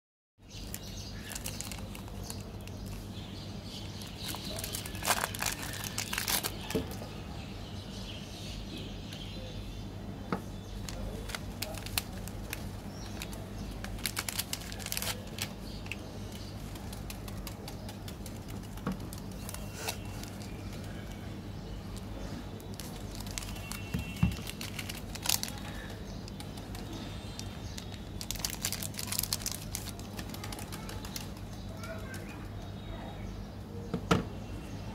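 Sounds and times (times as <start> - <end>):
plastic wrappers crinkling and tearing: 0.5 - 3.2, 3.8 - 7.0, 10.7 - 21.3, 21.9 - 32.4.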